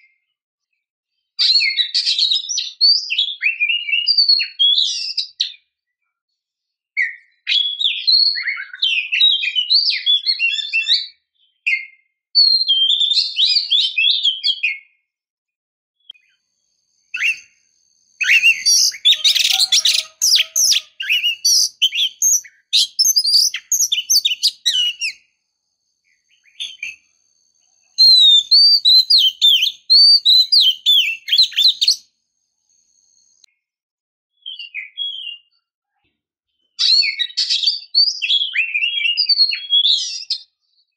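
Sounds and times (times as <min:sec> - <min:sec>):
bird whistles and chattering: 0:07.0 - 0:14.7, 0:17.1 - 0:17.6, 0:18.2 - 0:25.3, 0:26.3 - 0:27.0, 0:27.9 - 0:32.1, 0:36.8 - 0:40.5.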